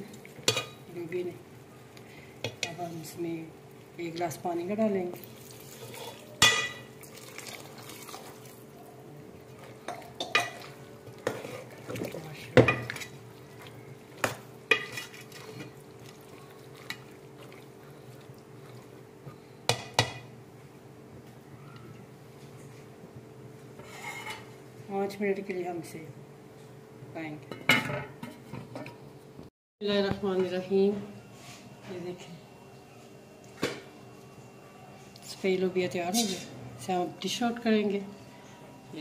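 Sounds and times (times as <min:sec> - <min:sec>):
water pouring: 0:07.0 - 0:08.6.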